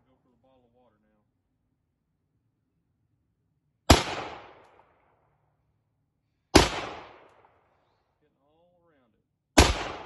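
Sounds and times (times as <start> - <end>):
gunshot echoing: 3.9 - 5.1, 6.5 - 7.7, 9.6 - 10.0.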